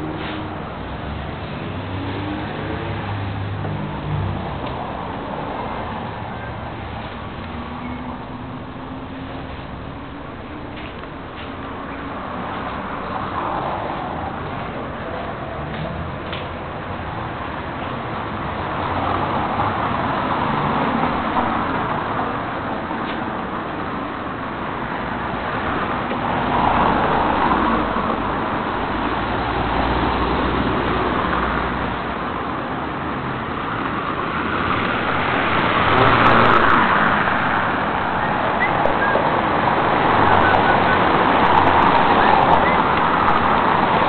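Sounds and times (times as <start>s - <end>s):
road traffic noise: 0.0s - 44.0s.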